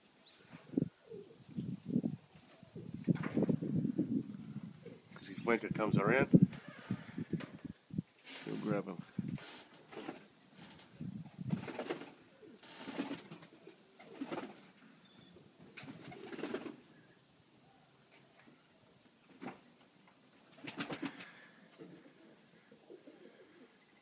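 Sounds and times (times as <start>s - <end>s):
pigeons cooing: 0.6s - 3.1s, 4.0s - 5.1s, 12.3s - 14.5s, 21.0s - 23.9s.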